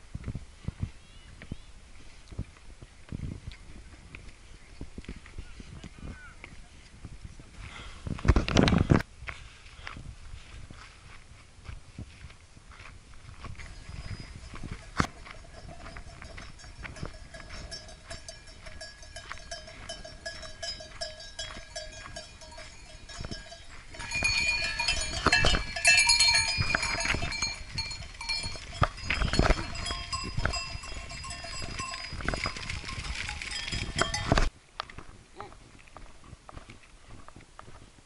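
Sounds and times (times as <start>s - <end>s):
steps on a stony track: 0.1s - 38.0s
sheep bells clanking and ringing: 13.4s - 34.5s.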